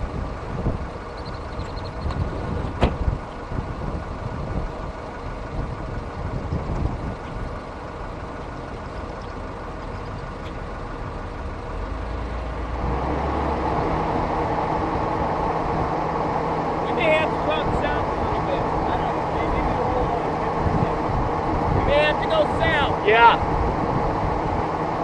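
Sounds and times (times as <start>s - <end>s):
vehicle engine rumble: 0.0s - 25.0s
steady rushing noise with hum: 12.6s - 25.0s.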